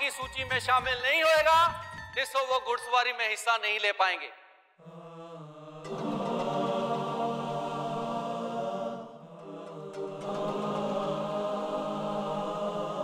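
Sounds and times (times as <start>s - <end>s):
chant-like choir voices: 4.8s - 13.0s.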